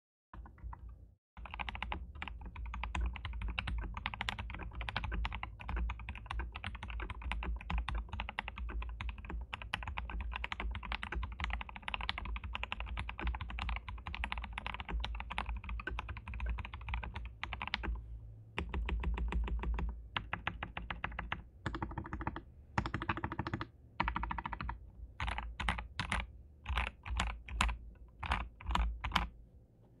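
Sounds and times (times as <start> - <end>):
mechanical keyboard typing: 0.4 - 18.0, 18.6 - 29.4.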